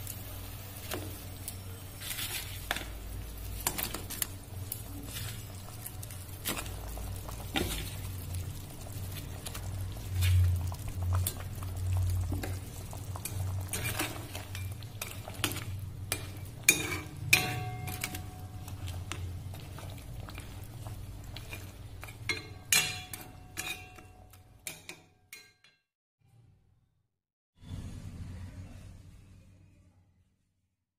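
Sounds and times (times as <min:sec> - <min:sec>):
curry sizzling and bubbling: 0:00.0 - 0:25.5
spatula scraping in wok: 0:12.1 - 0:24.3.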